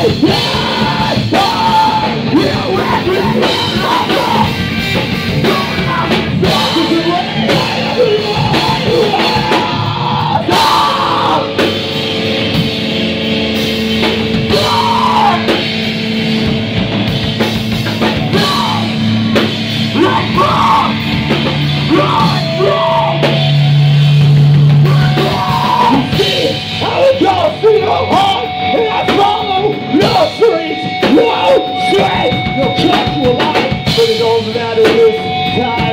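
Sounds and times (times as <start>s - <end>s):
person yelling into a microphone: 0.0s - 4.6s, 5.3s - 11.6s, 14.5s - 15.5s, 18.3s - 19.0s, 19.9s - 21.0s, 21.8s - 23.4s, 24.8s - 35.0s
drum kit: 0.0s - 35.9s
electric guitar: 0.0s - 35.9s.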